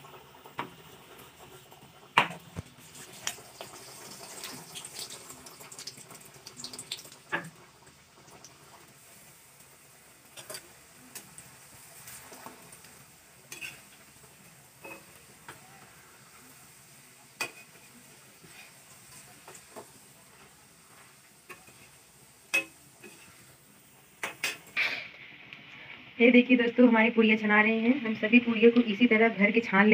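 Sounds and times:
deep-frying sizzle: 0.0s - 25.9s
metal utensil clinking and scraping: 10.4s - 11.3s, 13.5s - 14.0s.

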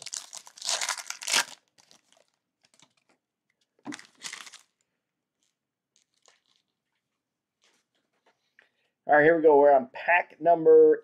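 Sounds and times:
foil wrapper crinkling: 0.0s - 3.1s, 3.9s - 4.8s, 5.4s - 6.7s.

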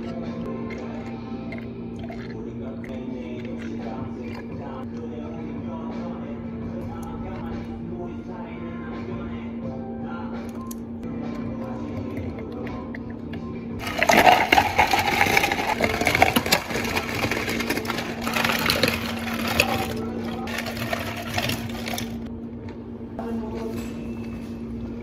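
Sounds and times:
ice cubes rattling into cups: 13.8s - 22.3s.

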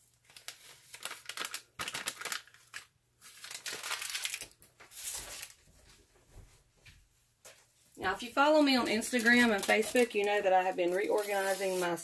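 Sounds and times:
plastic packet crinkling: 0.1s - 5.6s, 8.2s - 12.0s.

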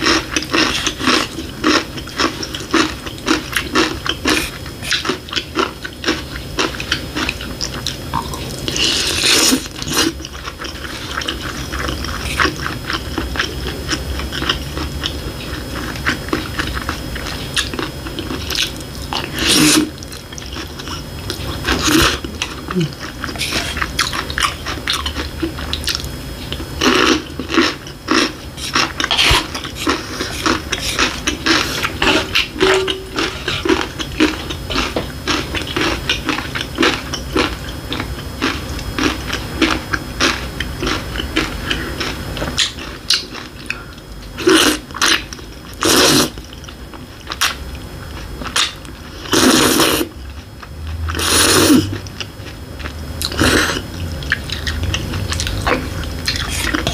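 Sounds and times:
slurping noodles: 8.4s - 14.6s, 15.5s - 24.5s, 44.4s - 45.2s, 45.8s - 46.4s, 48.6s - 50.2s, 51.1s - 52.1s, 53.2s - 56.9s
wet chewing and lip smacking: 50.4s - 56.9s.

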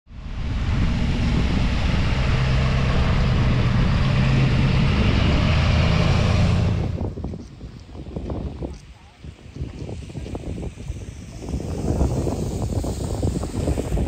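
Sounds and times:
truck engine hum: 0.1s - 8.6s
tyres hissing on wet tarmac: 0.1s - 14.0s.

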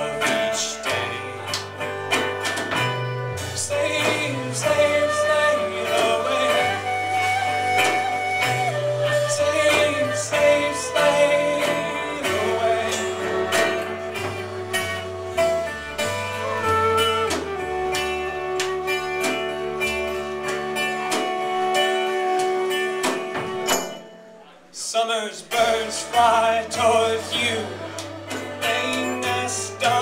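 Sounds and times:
bass line: 0.0s - 23.8s
flute melody: 0.0s - 24.5s, 26.2s - 30.0s
plucked mandolin: 0.0s - 24.5s
keyboard: 0.0s - 24.7s.

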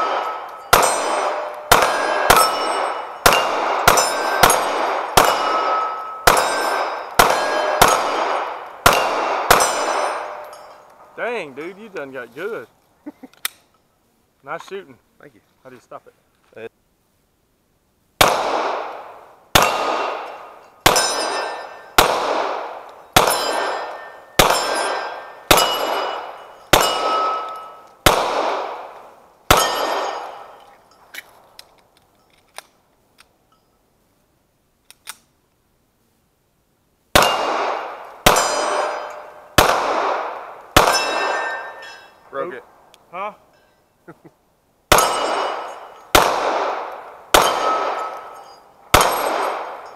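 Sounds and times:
pistol shots: 0.0s - 10.5s, 18.2s - 30.5s, 37.2s - 41.9s, 44.9s - 49.9s
steel target ringing: 0.0s - 10.9s, 19.6s - 22.0s, 23.1s - 27.9s, 29.5s - 30.7s, 38.3s - 39.6s, 40.8s - 42.3s, 44.9s - 46.2s, 47.3s - 49.9s.

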